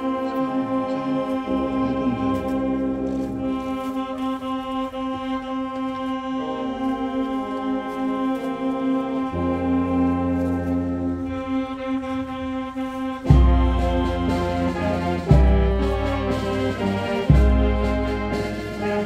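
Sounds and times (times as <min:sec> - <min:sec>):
slow solemn brass music: 0:00.0 - 0:19.0.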